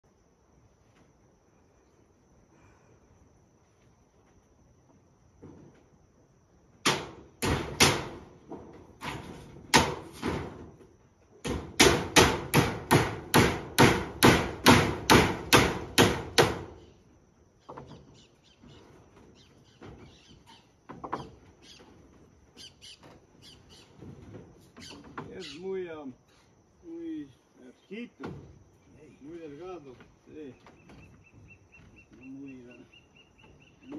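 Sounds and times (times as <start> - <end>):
hammer driving nails on roof: 6.8 - 8.3, 9.0 - 10.6, 11.4 - 16.8.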